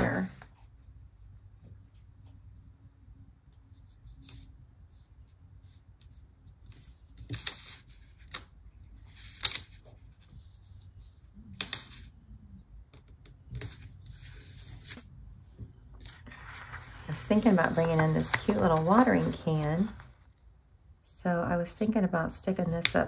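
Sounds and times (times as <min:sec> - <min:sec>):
paper crackles: 0:16.0 - 0:20.4.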